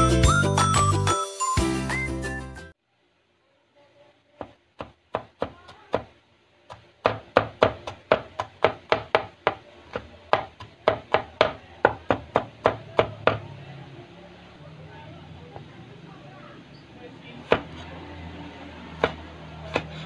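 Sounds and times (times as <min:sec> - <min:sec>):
knife chopping on wooden board: 0:04.4 - 0:06.1, 0:06.7 - 0:13.4, 0:17.4 - 0:17.9, 0:19.0 - 0:20.0.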